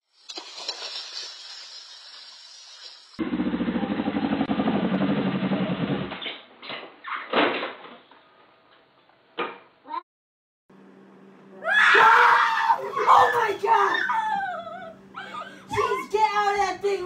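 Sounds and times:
motorcycle engine running: 3.2 - 6.1
motorcycle crashing onto its side: 5.1 - 8.0.

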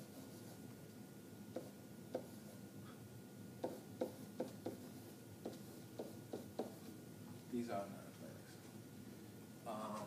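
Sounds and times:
pen tapping on whiteboard: 1.5 - 2.4, 3.6 - 6.9.

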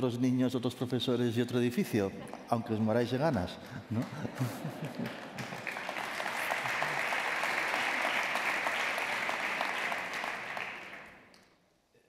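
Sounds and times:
audience applauding: 3.9 - 11.4.

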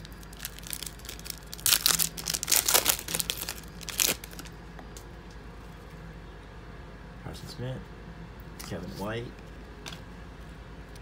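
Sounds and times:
foil pack tearing and crinkling: 0.0 - 4.5.

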